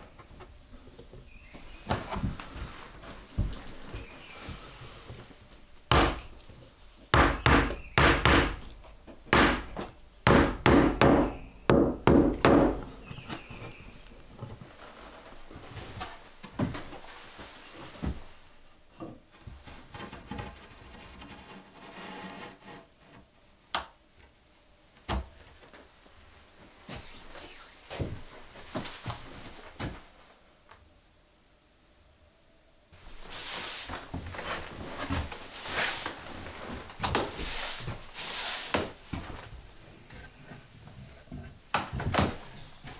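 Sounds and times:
hammer striking wood: 0:05.9 - 0:06.3, 0:07.2 - 0:08.6, 0:09.3 - 0:12.8.

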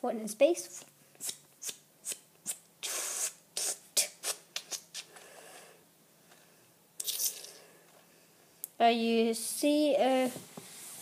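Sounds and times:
rustling scrapes: 0:10.2 - 0:11.0.

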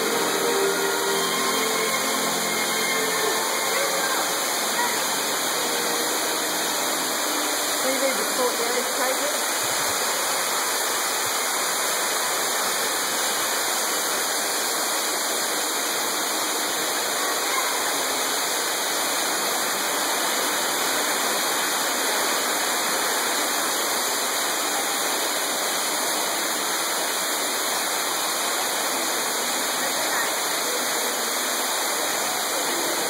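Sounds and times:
waterfall pouring into pool: 0:00.0 - 0:33.0.

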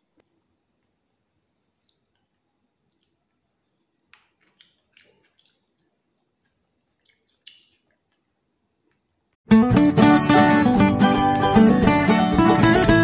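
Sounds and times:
steady high hiss: 0:00.0 - 0:09.4.

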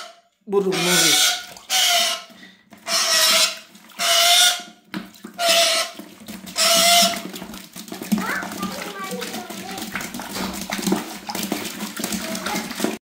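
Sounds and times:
bird screeching: 0:00.7 - 0:02.3.

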